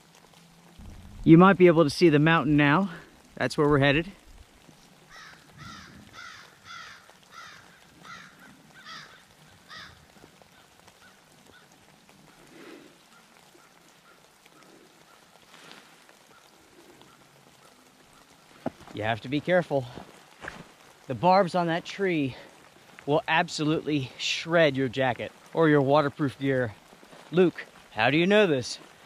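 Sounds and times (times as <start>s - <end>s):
bird calling: 4.8s - 18.9s.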